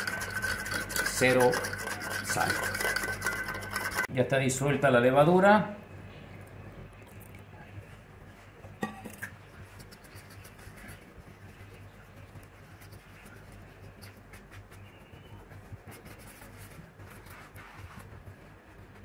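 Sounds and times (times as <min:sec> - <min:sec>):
spoon scraping dough: 0:00.0 - 0:04.1, 0:08.4 - 0:19.0.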